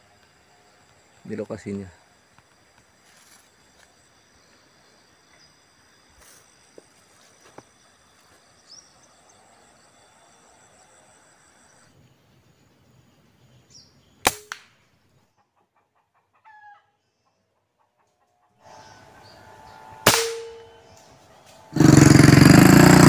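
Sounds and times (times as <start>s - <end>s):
air rifle shots: 14.2s - 14.7s, 20.0s - 20.7s
motorcycle engine running: 21.6s - 23.0s.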